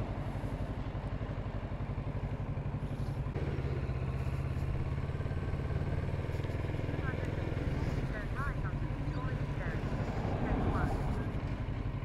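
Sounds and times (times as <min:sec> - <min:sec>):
motorcycle engine pulling away: 0:00.0 - 0:08.1.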